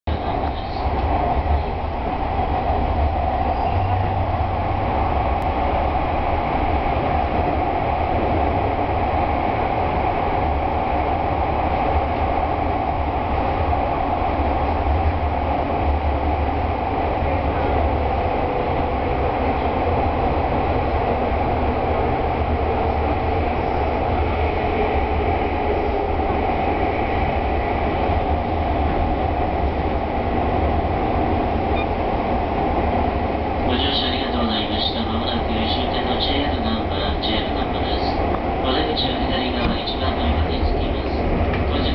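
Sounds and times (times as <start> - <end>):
train wheels rumbling: 0.1 - 41.9.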